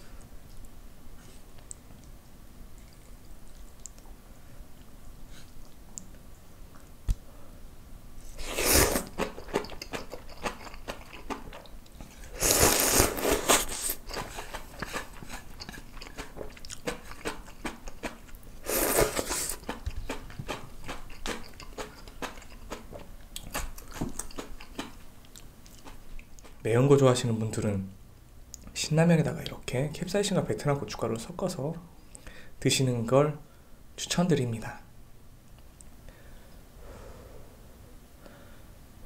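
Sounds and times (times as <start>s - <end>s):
chewing clicks: 2.8s - 4.1s, 9.1s - 12.1s, 14.1s - 18.4s, 19.5s - 26.6s
person slurping noodles: 8.3s - 11.0s, 12.2s - 15.8s, 18.6s - 21.9s.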